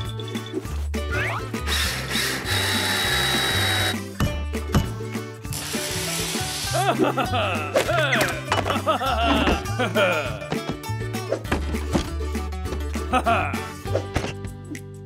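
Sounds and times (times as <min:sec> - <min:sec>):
background music with bass line: 0:00.0 - 0:15.0
power tool whirring: 0:01.7 - 0:04.0, 0:05.5 - 0:06.8.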